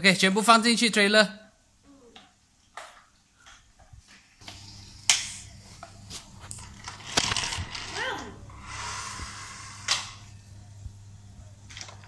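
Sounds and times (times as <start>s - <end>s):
plastic toy cars clacking: 6.8s - 8.1s.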